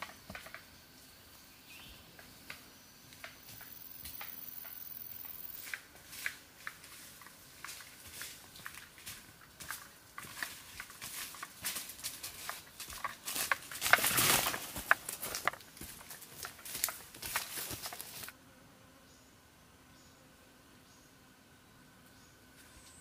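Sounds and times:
footsteps on dry leaves: 0:05.5 - 0:18.4.

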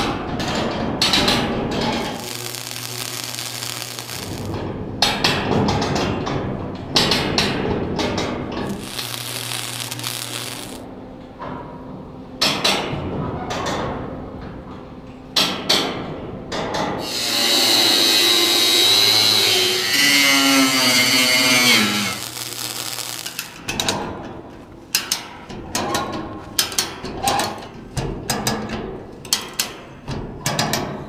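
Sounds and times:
angle grinder cutting steel: 0:02.1 - 0:04.5, 0:08.7 - 0:10.8, 0:17.0 - 0:23.6.

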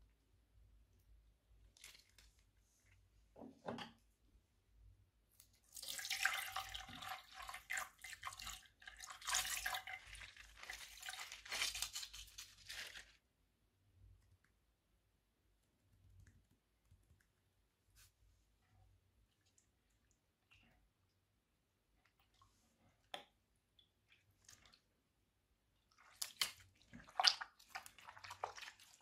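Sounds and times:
water streaming and splashing: 0:26.1 - 0:29.0.

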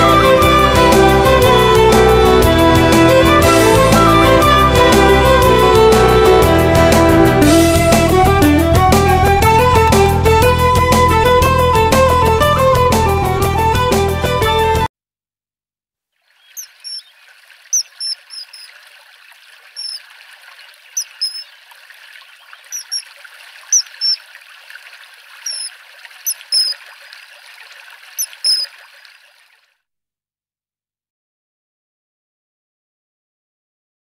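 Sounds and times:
kingfisher calling: 0:16.4 - 0:18.7, 0:19.8 - 0:20.0, 0:20.9 - 0:21.6, 0:22.6 - 0:23.1, 0:23.7 - 0:24.2, 0:25.4 - 0:26.8, 0:28.2 - 0:28.8
stream rushing: 0:16.6 - 0:29.0.

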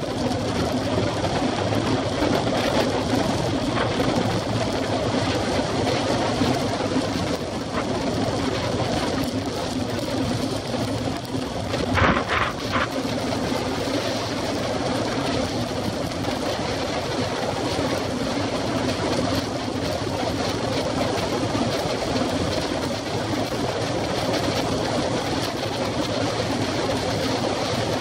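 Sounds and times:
wind rushing over microphone: 0:00.9 - 0:17.6
road noise: 0:06.5 - 0:15.1.

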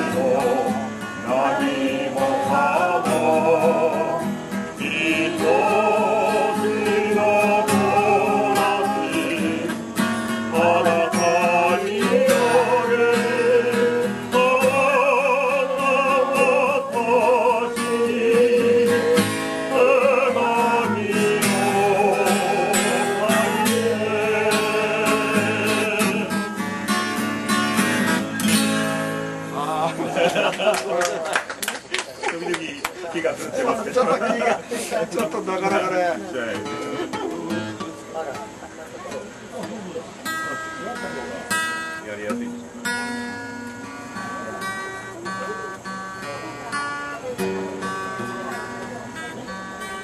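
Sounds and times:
person singing: 0:00.0 - 0:09.9, 0:10.5 - 0:26.4
acoustic guitar strumming: 0:00.0 - 0:31.0, 0:32.9 - 0:50.0.

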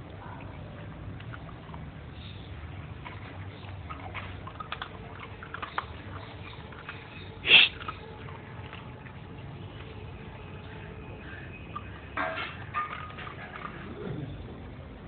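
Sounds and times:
dog sniffing and eating: 0:01.2 - 0:08.9.

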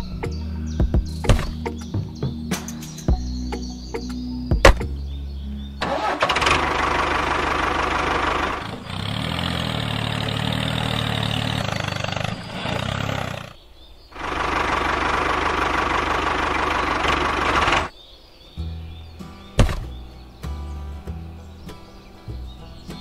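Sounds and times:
tractor engine running: 0:05.8 - 0:13.6, 0:14.2 - 0:17.9.

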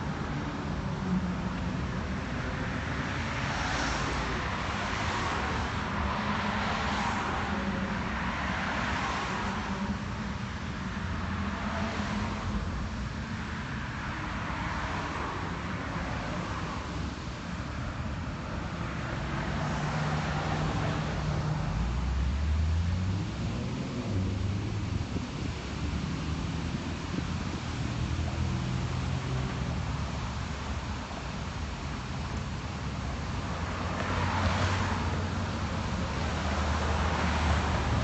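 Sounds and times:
cars driving past: 0:00.0 - 0:38.0.

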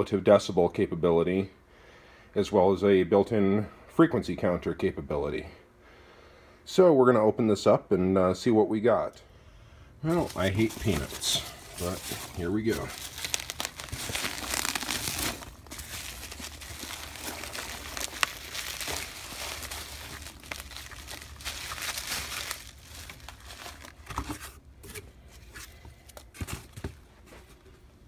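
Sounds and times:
bubble wrap and packing peanuts rustling: 0:10.1 - 0:24.6.

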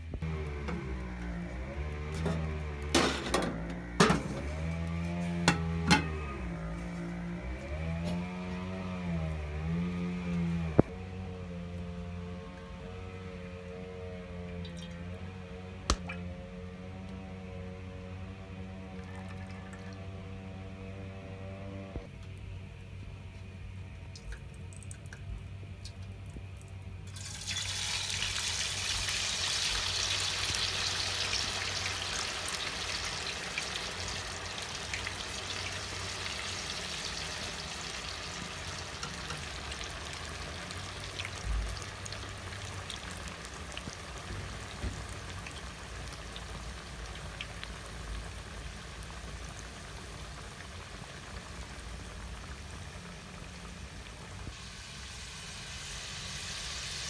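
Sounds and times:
fries sizzling in hot oil: 0:00.0 - 0:07.1, 0:13.9 - 0:15.2, 0:27.1 - 0:57.0.

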